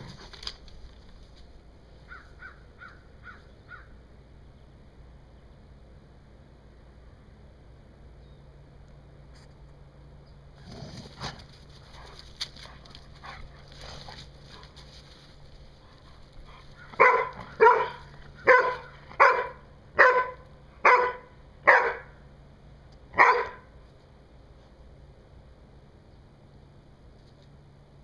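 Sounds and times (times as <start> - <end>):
dog barking: 16.9 - 22.2, 23.2 - 23.7.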